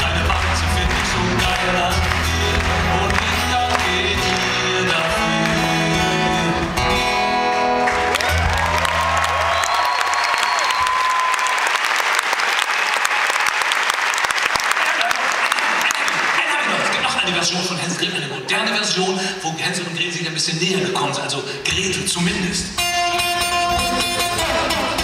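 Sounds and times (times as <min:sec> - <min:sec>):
audience applauding: 0:00.0 - 0:05.8, 0:07.7 - 0:18.2
acoustic guitar playing: 0:00.0 - 0:09.4, 0:22.4 - 0:25.0
whistle from crowd: 0:09.5 - 0:11.4.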